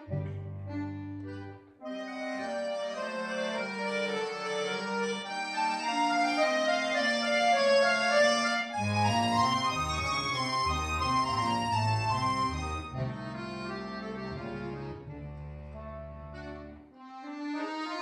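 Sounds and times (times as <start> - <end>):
melodic held notes music: 0.0 - 18.0.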